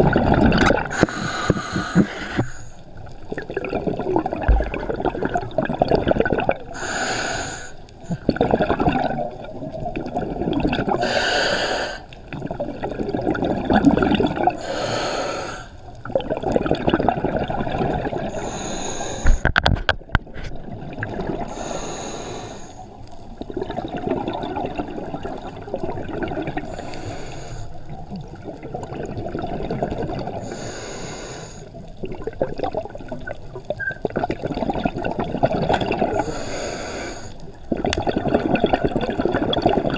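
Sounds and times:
gurgling exhaust bubbles: 0.0s - 1.0s, 3.3s - 6.7s, 8.1s - 11.0s, 12.3s - 14.6s, 16.1s - 18.3s, 37.7s - 39.9s
regulator hissing inhale: 0.9s - 2.8s, 6.7s - 8.2s, 11.0s - 12.2s, 14.6s - 15.8s, 18.3s - 19.4s, 21.5s - 22.9s, 26.7s - 27.8s, 30.4s - 31.8s, 36.2s - 37.5s.

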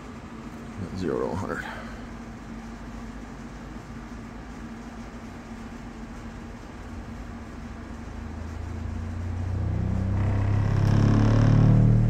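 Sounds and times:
subwoofer bass sine sweep: 5.6s - 12.0s
buzzy overtones: 8.4s - 12.0s.

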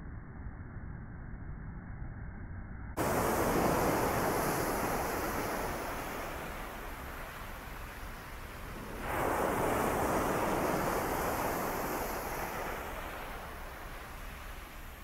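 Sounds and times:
waves crashing on shore: 3.0s - 15.0s
wind on microphone: 3.0s - 15.0s.

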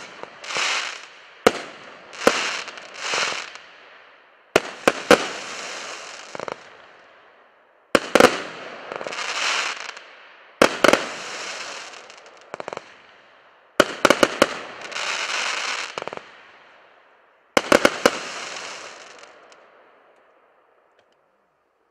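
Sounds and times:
firework hiss: 0.0s - 1.1s, 2.1s - 3.6s, 11.0s - 12.4s, 17.7s - 19.3s
firework bangs: 0.0s - 3.6s, 4.6s - 6.7s, 17.6s - 19.5s.

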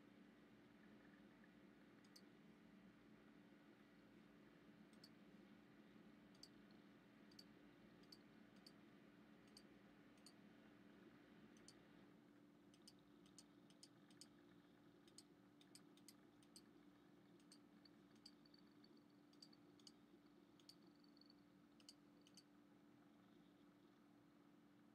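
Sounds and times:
low steady hum: 0.0s - 24.9s
computer mouse clicks: 2.0s - 2.3s, 4.9s - 5.2s, 6.3s - 8.8s, 9.4s - 10.4s, 11.6s - 11.8s, 12.7s - 14.4s, 15.0s - 16.7s, 17.4s - 20.0s, 20.6s - 22.5s.

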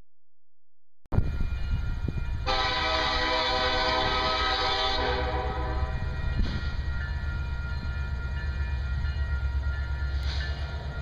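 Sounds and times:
train rumbling: 1.1s - 11.0s
locomotive air horn blast: 2.4s - 6.0s.

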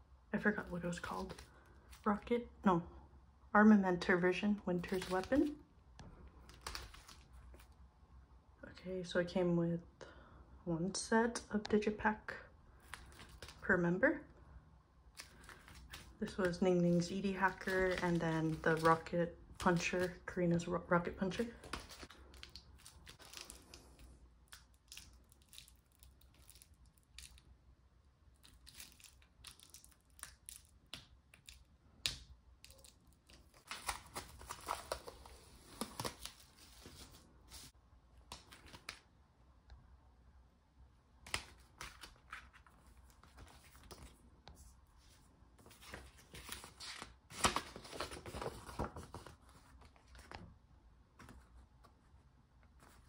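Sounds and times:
wrapping tearing and crinkling: 15.1s - 20.2s, 21.4s - 27.5s, 28.3s - 31.7s.

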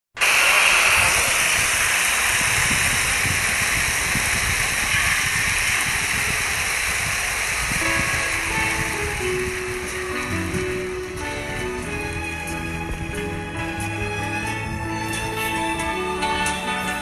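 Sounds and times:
crowd applause and cheering: 0.2s - 17.0s.

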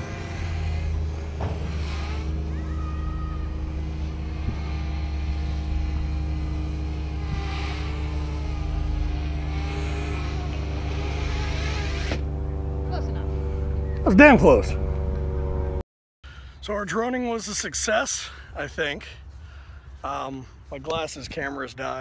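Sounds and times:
drone propellers buzzing: 0.0s - 15.8s.

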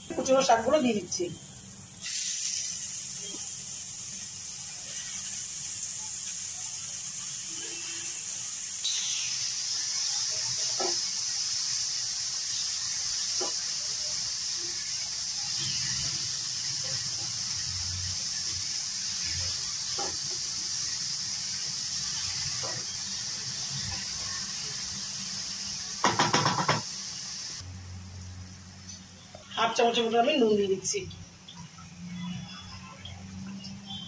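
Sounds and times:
spinach sizzling in oil: 0.0s - 27.6s
spatula knocking on pan: 26.0s - 26.9s.

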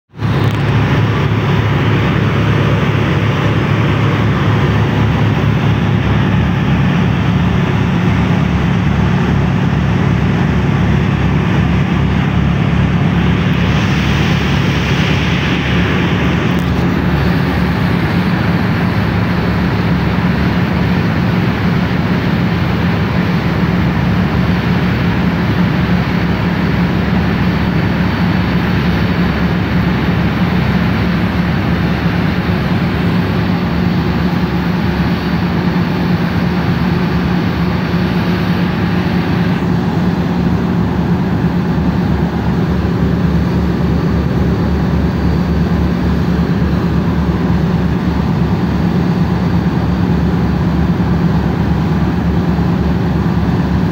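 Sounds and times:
diesel engines droning: 0.1s - 53.9s
hiss: 13.1s - 19.8s.

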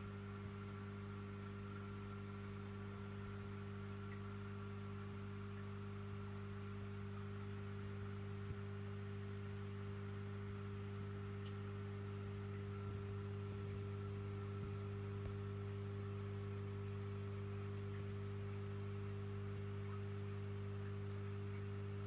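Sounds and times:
low electrical hum: 0.0s - 22.0s
faint ticks: 9.4s - 12.9s.

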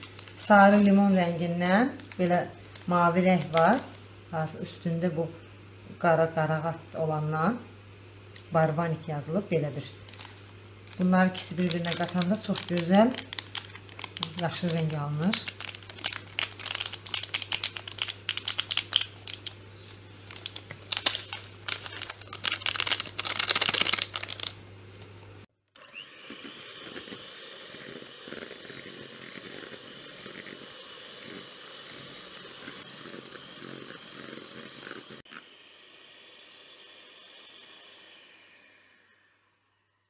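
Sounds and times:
plastic packets crinkling: 0.0s - 3.9s, 10.0s - 24.6s.

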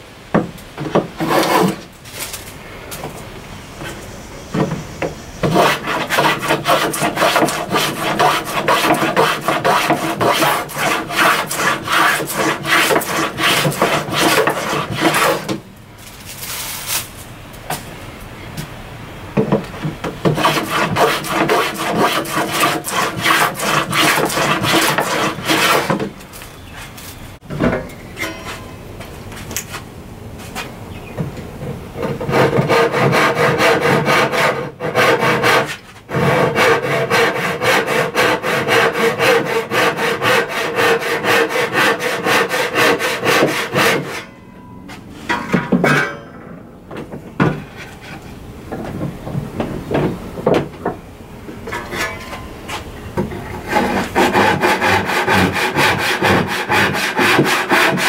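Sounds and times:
hand saw cutting wood: 0.9s - 1.9s, 5.4s - 15.6s, 20.2s - 26.1s, 32.0s - 44.3s, 53.4s - 58.0s.

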